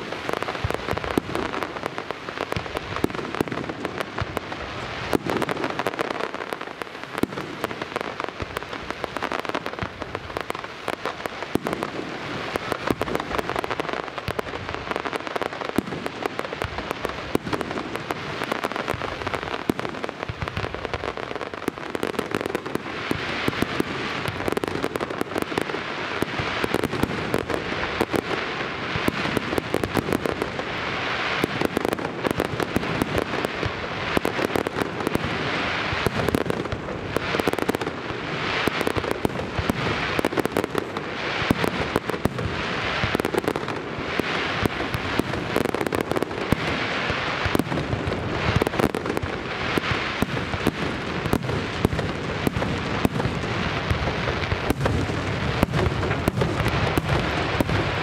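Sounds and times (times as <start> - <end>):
fireworks crackling: 0.0 - 58.0.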